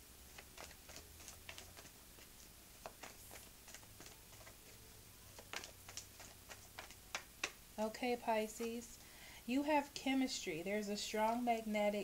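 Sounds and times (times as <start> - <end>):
cards being shuffled: 0.3 - 7.6, 8.4 - 8.9.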